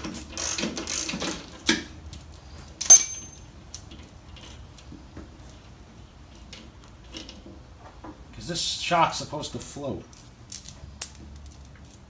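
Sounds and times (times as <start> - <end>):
metal tools clinking: 0.4 - 4.8, 10.1 - 12.0.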